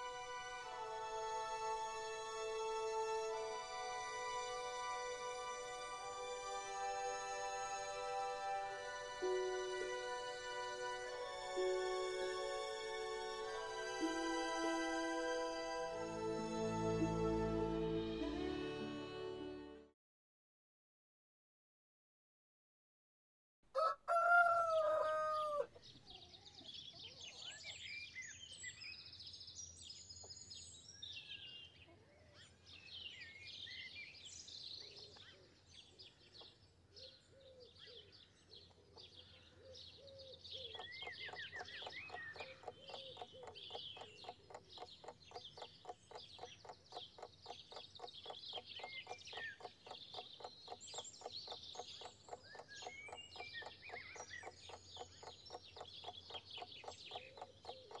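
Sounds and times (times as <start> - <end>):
rooster crowing: 23.8 - 25.7
small birds chirping: 25.8 - 58.0
fast even ticking: 40.7 - 58.0.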